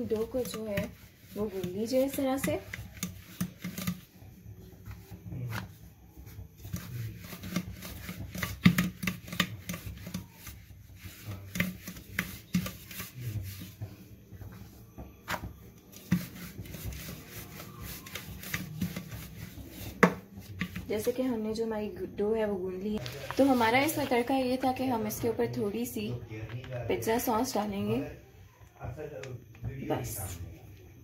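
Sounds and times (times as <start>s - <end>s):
rolling pin rubbing dough: 0.0s - 22.0s, 23.0s - 25.9s
wood knocking on counter: 19.8s - 20.9s.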